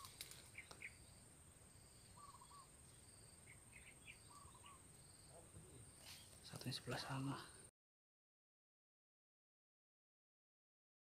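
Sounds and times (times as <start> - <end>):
faint chirping calls: 0.0 - 7.7
high-pitched insect trill: 0.1 - 6.4.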